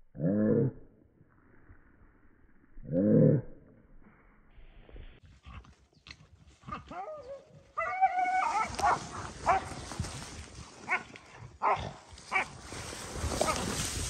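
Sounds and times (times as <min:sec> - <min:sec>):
rustling of brush and grass: 0:05.0 - 0:14.0
dogs yelping and barking: 0:06.9 - 0:09.8.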